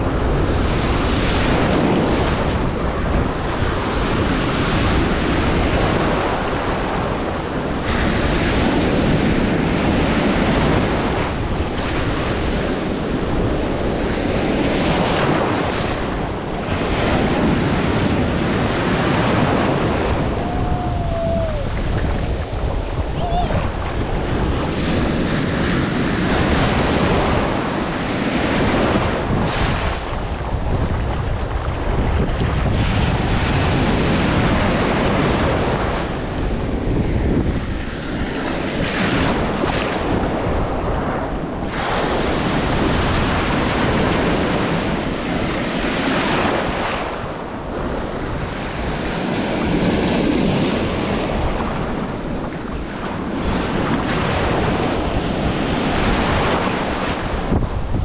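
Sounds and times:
ocean surf breaking: 0.0s - 58.0s
wind buffeting microphone: 0.0s - 58.0s.

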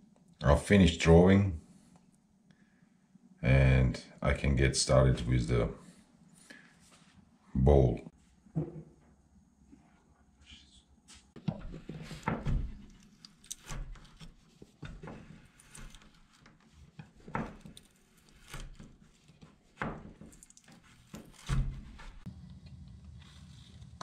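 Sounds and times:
whittling knife cutting wood: 12.4s - 22.2s.

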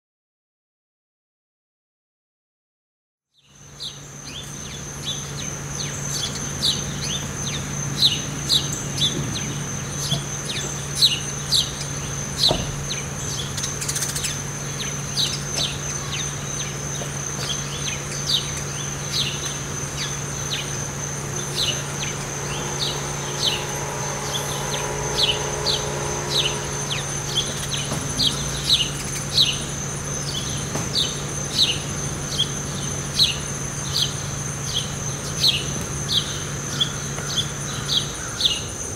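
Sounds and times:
high insect drone: 3.5s - 38.9s
low steady hum: 4.0s - 37.0s
bird chirps sweeping downward: 17.6s - 32.6s.

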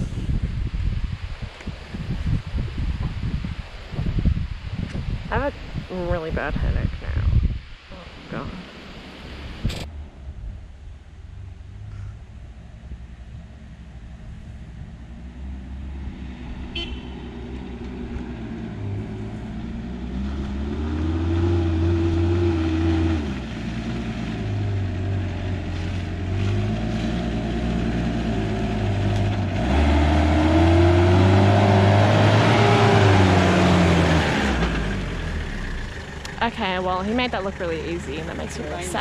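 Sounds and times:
truck engine revving: 9.6s - 39.0s
tyres on dirt: 15.0s - 39.0s.

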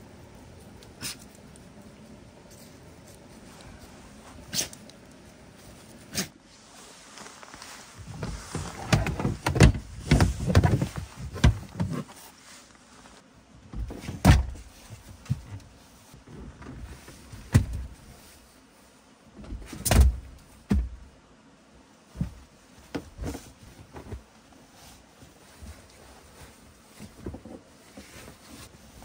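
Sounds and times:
seat backs thumping: 8.1s - 12.1s, 13.7s - 14.7s.

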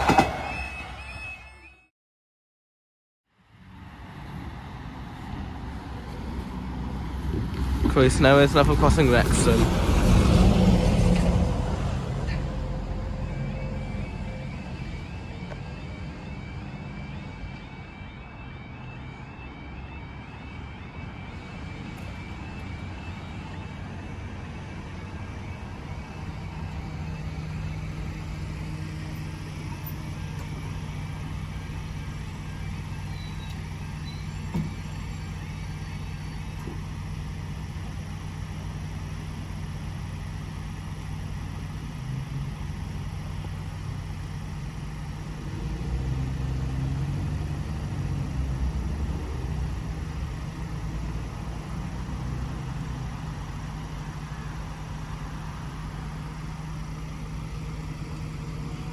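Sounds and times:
level crossing alarm warbling: 11.9s - 37.5s
vehicle engine idling: 20.7s - 58.9s.

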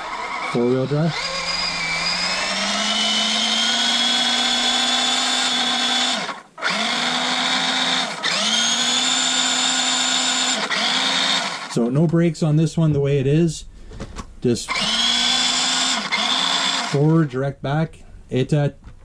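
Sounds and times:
electric motor and gears whining: 0.0s - 11.8s, 14.7s - 17.3s.

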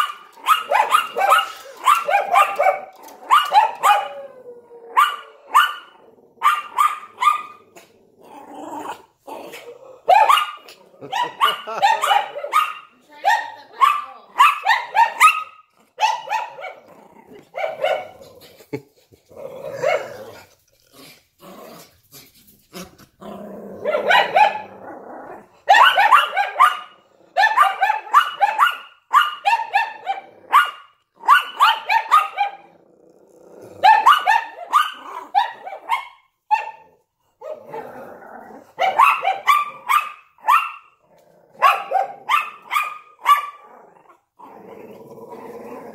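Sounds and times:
dogs barking: 0.0s - 4.2s, 4.9s - 7.6s, 9.5s - 16.9s, 17.5s - 18.2s, 23.8s - 24.7s, 25.6s - 32.7s, 33.8s - 37.9s, 38.7s - 41.0s, 41.6s - 43.7s
dog growling: 4.1s - 11.8s, 15.7s - 25.7s, 27.0s - 27.4s, 32.5s - 33.9s, 36.8s - 38.8s, 41.0s - 42.0s, 43.1s - 45.9s.

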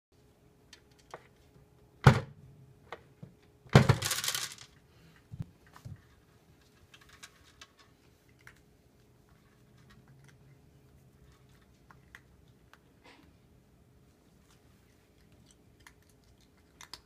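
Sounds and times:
dry kibble clattering into tray: 3.8s - 4.7s.

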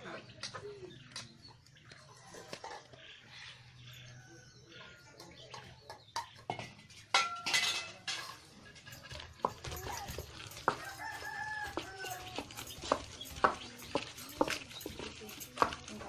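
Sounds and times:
stone grinder knocking and crunching: 9.2s - 16.0s.

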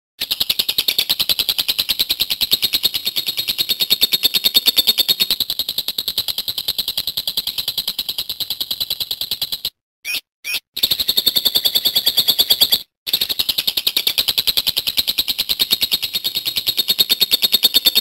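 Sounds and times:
lovebird chattering: 0.2s - 5.4s.

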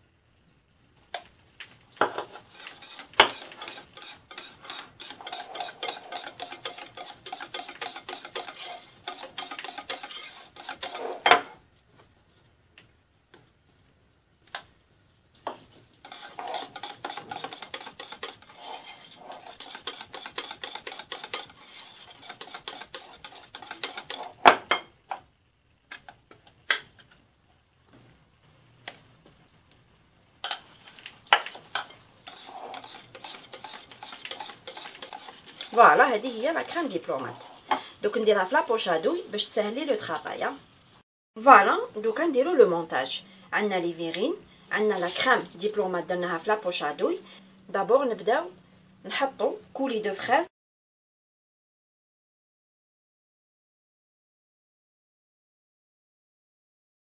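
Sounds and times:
whisk clinking in glass bowl: 2.6s - 11.0s, 16.1s - 18.4s, 19.4s - 24.3s, 32.3s - 36.4s
utensils knocking against bowl: 2.8s - 11.4s, 16.1s - 18.4s.

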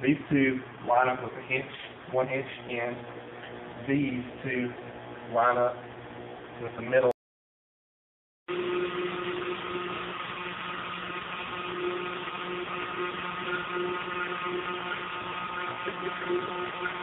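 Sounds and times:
hydraulic pump humming: 0.0s - 7.1s, 8.5s - 17.0s.

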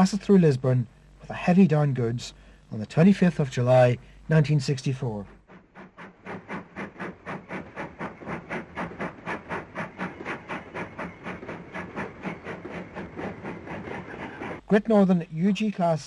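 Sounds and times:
steam locomotive exhaust beats: 4.0s - 14.8s
steam hissing: 5.8s - 14.7s.

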